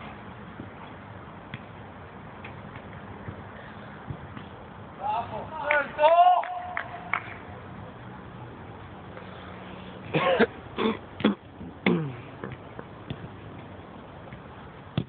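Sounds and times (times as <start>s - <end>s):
steady background hum: 0.0s - 15.0s
person shouting: 5.0s - 6.8s.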